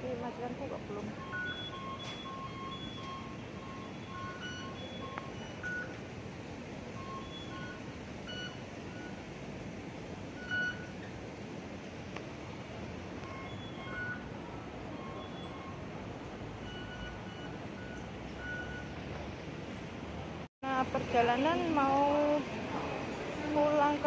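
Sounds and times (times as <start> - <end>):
station concourse hum: 0.0 - 24.0
card reader beeps: 1.0 - 6.0, 7.0 - 9.2, 10.4 - 11.1, 13.2 - 14.3, 14.9 - 15.9, 16.6 - 18.9.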